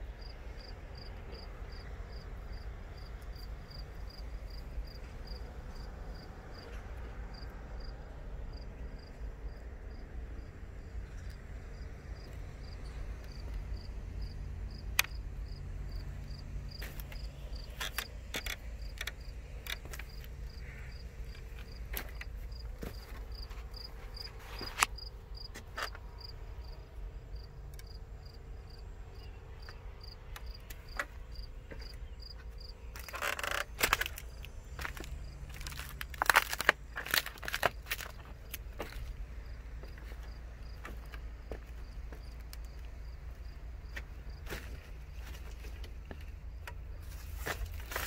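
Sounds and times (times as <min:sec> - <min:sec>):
rustling crunching noise: 0:33.0 - 0:39.2, 0:47.0 - 0:48.0.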